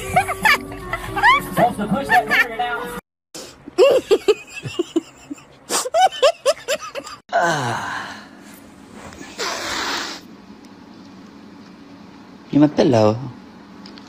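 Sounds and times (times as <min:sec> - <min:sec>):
person laughing and gasping: 0:03.4 - 0:07.7
man groaning: 0:07.3 - 0:08.2.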